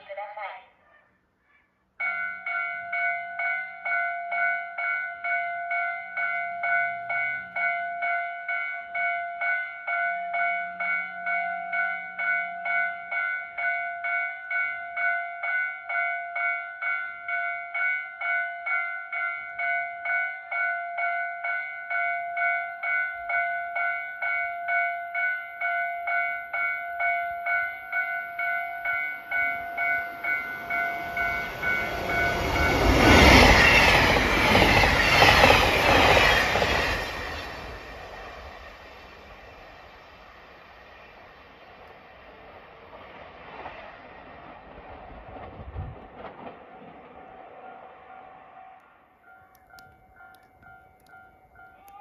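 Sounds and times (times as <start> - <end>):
railway crossing bell dinging: 2.0 - 40.5, 47.6 - 52.0
train wheels clickety-clack on rails: 29.5 - 39.3, 41.8 - 47.3.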